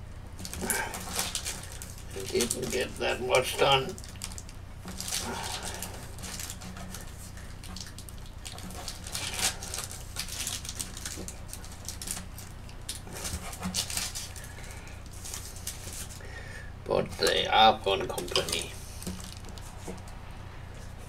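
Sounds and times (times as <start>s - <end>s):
low electrical hum: 0.0s - 21.0s
scratchy handling noises: 0.4s - 16.2s.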